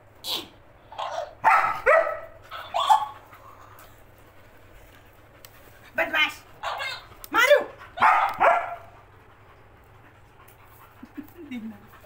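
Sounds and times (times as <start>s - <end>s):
dog barking: 1.0s - 3.2s, 6.6s - 7.0s, 8.0s - 8.9s.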